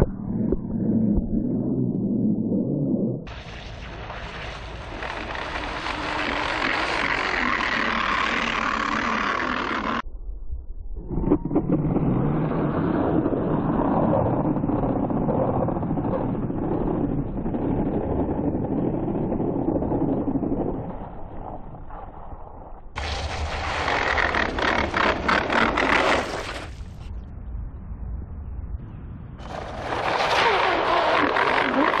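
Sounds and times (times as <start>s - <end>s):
motor and water churning: 3.3s - 10.0s.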